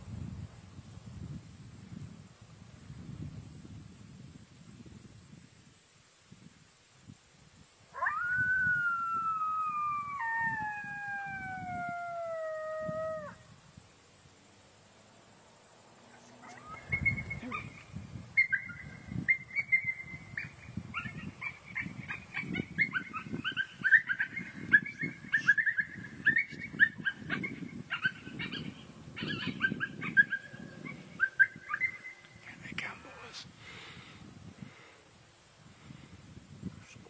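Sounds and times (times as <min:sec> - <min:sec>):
coyotes yipping and barking: 0:07.9 - 0:13.5, 0:16.0 - 0:33.3.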